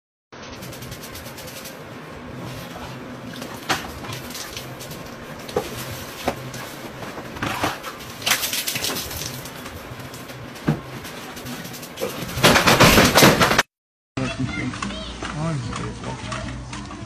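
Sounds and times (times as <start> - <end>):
sharp knocks and clatters: 10.6 - 13.7.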